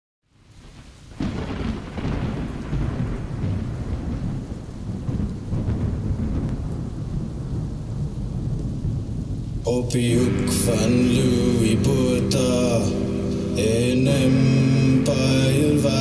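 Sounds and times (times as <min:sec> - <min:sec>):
rain falling: 0:00.3 - 0:16.0
thunderclap and rolling rumble: 0:00.6 - 0:09.7.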